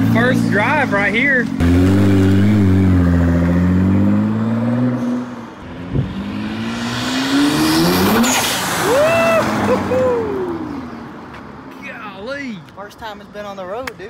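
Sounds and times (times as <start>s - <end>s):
car engine accelerating: 0.0s - 10.9s.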